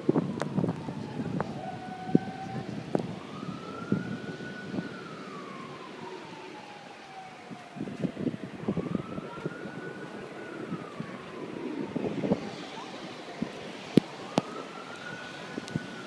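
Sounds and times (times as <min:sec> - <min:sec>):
siren wailing: 0:00.0 - 0:16.0
wind rumbling on microphone: 0:00.0 - 0:16.0.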